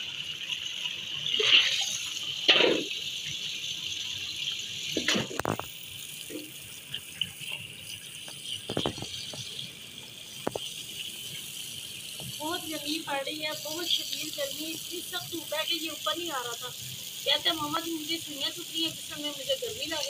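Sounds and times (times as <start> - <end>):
water splashing into basin: 1.3 - 3.0, 4.9 - 7.1.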